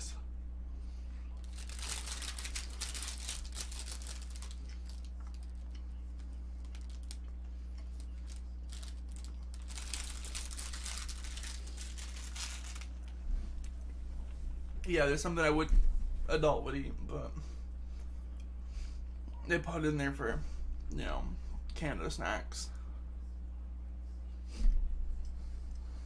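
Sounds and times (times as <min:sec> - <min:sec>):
low electrical hum: 0:00.0 - 0:26.0
crackling snack chewing: 0:01.4 - 0:13.9.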